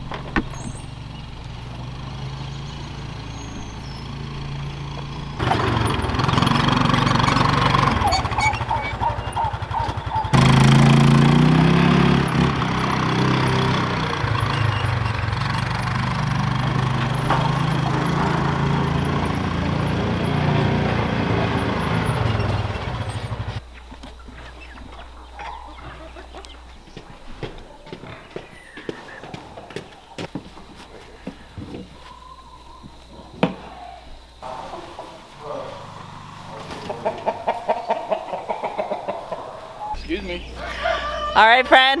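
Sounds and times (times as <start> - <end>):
utility vehicle engine running: 0.0 - 27.0, 34.2 - 38.1.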